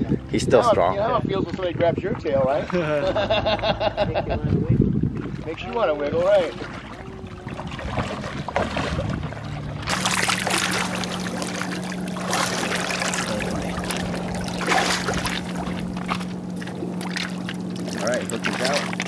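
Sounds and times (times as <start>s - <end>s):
steady low hum: 4.9s - 19.0s
water splashing around fish: 5.1s - 19.0s.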